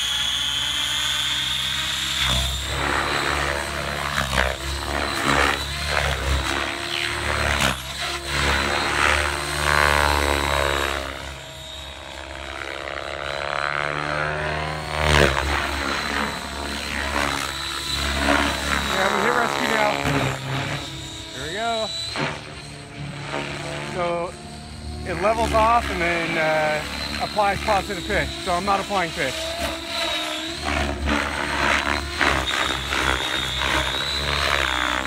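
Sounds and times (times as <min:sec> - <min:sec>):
rc helicopter rotor whine: 0:00.0 - 0:35.0.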